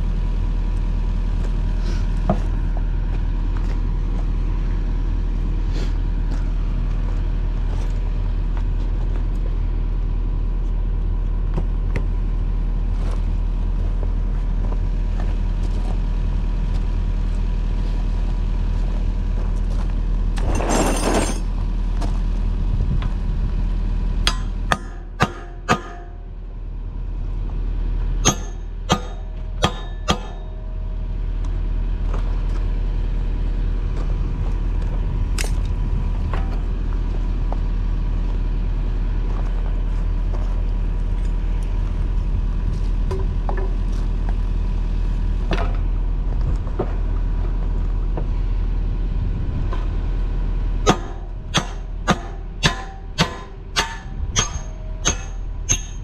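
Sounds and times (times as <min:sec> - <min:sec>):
diesel engine idling: 0:00.0 - 0:20.4, 0:21.5 - 0:56.0
sharp knocks: 0:50.9 - 0:56.0.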